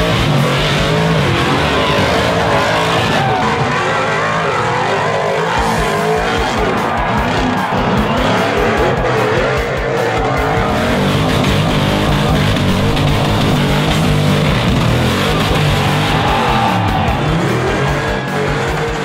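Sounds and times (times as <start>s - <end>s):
race car engines revving: 0.0s - 19.0s
background music with steady beat: 4.7s - 19.0s.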